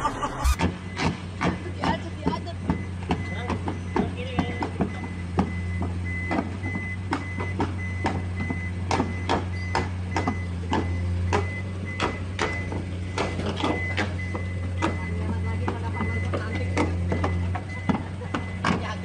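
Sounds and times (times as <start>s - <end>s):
diesel engine running: 0.0s - 3.1s
travel alarm beeping: 4.9s - 12.7s, 13.7s - 18.8s.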